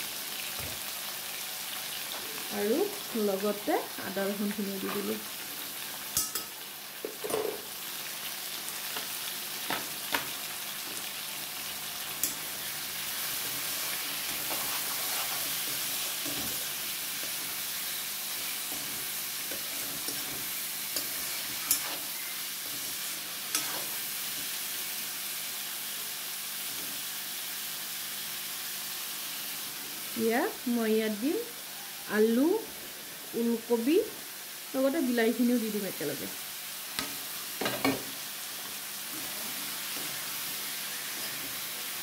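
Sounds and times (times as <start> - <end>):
meat and onions sizzling in oil: 0.0 - 42.0
utensil clinking against pan: 6.2 - 6.5.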